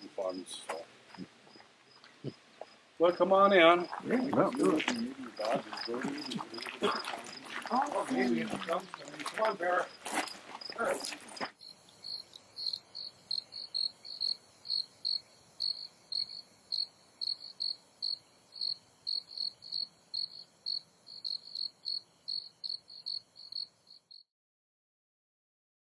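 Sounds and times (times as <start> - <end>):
faint hiss: 0.0 - 9.9
cricket chirping: 0.0 - 24.2.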